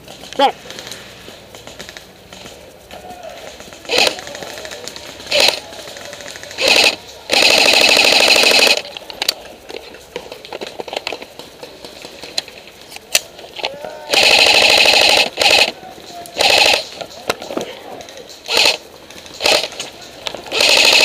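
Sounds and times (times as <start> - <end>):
airsoft rifle firing bursts: 3.5 - 9.3, 14.1 - 17.5, 18.4 - 21.0
sharp crack: 10.2 - 21.0.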